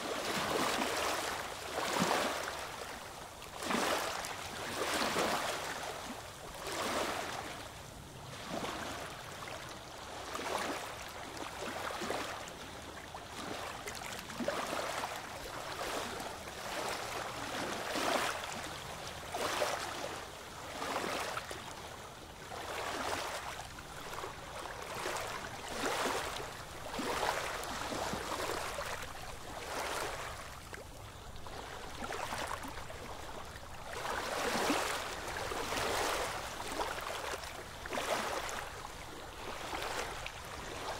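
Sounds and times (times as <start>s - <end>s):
water lapping: 0.0s - 40.9s
oars splashing through water: 22.5s - 40.9s.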